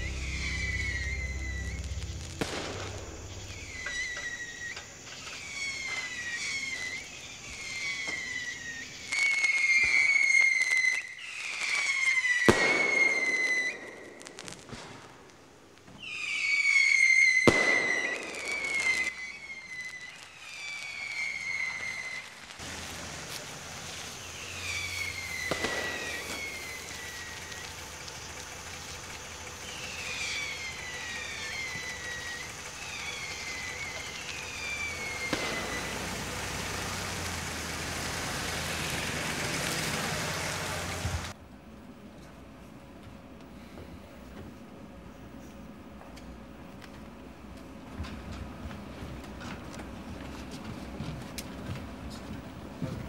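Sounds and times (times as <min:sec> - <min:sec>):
firework bangs: 0:00.0 - 0:41.4
whistling fireworks: 0:00.0 - 0:41.4, 0:43.5 - 0:53.0.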